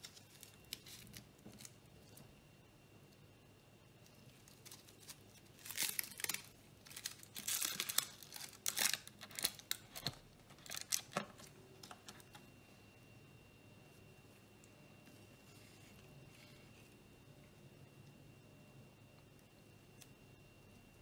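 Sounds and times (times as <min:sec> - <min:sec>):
paper crinkling and crackling: 0:00.0 - 0:02.2, 0:04.1 - 0:12.4.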